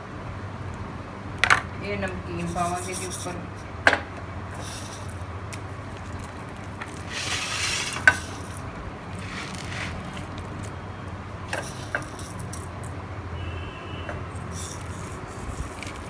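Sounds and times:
snack rustling onto paper plate: 4.6 - 10.8, 14.4 - 16.0.

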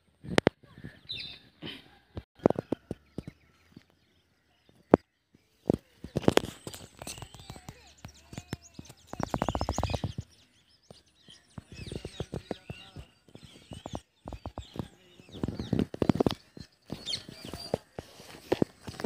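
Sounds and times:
small birds chirping: 0.0 - 19.0
sharp clicks: 5.7 - 10.3.

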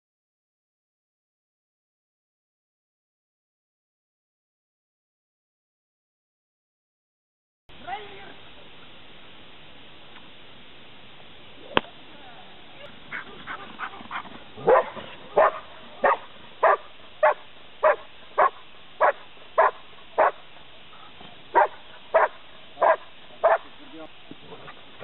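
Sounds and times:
dog barking steadily: 13.1 - 23.7.

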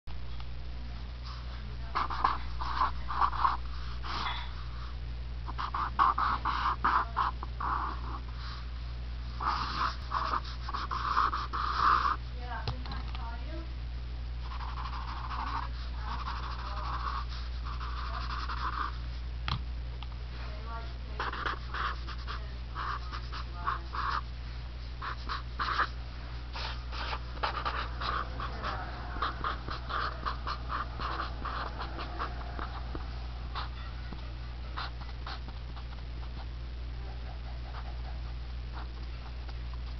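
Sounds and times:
steady low hum: 0.1 - 39.9
marker drawing on paper: 1.8 - 4.3, 5.5 - 8.4, 9.4 - 12.2, 14.4 - 19.0, 21.2 - 24.2, 25.0 - 34.0, 34.7 - 36.5.

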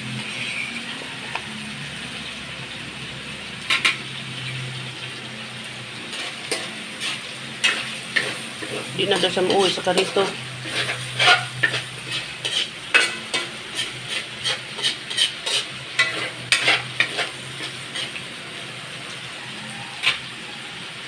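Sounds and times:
metal spoon scraping wok: 0.0 - 2.4, 5.9 - 18.8, 19.6 - 20.4
food sizzling: 0.0 - 21.0.

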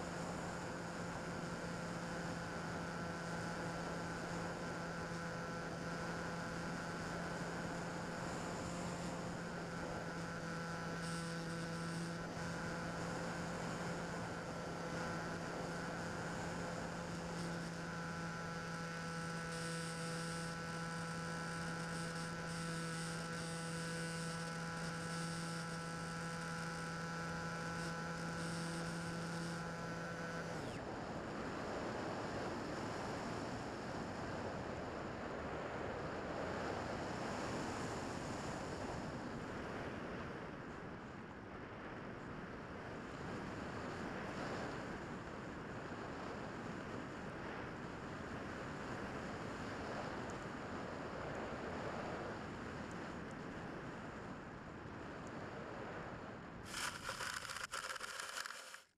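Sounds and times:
electric motor and propeller hum: 0.0 - 58.9.

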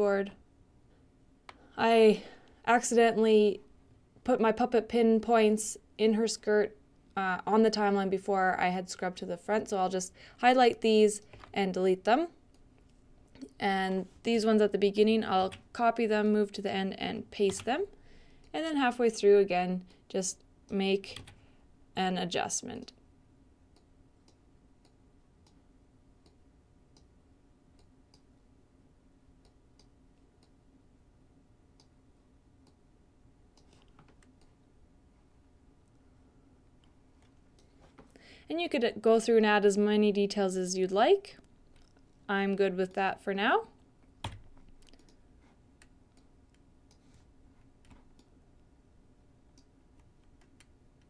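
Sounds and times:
faint room hum: 0.0 - 51.0
computer mouse clicks: 33.5 - 34.6, 44.2 - 45.2, 45.8 - 47.2.

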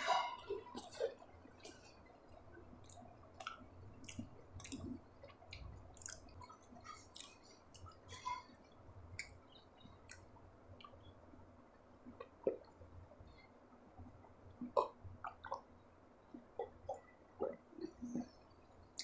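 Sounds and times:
mouth chewing wet food: 0.4 - 8.4, 12.1 - 19.0.

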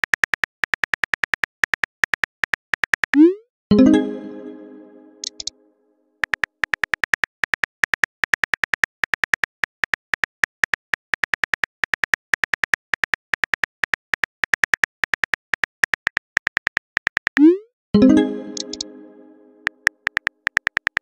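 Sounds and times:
on-screen keyboard tap clicks: 5.2 - 5.5, 18.5 - 18.9, 19.6 - 21.0.

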